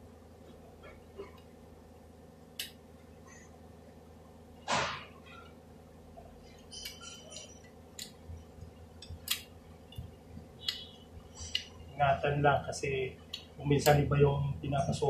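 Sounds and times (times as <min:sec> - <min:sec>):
low hum: 0:00.0 - 0:15.0
small metal parts clinking: 0:06.5 - 0:07.8.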